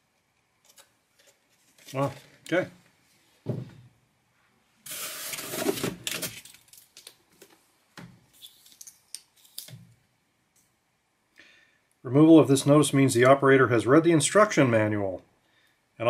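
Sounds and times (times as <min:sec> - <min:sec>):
dull thump: 0:03.4 - 0:03.8
rustling scrape of case: 0:04.9 - 0:06.4.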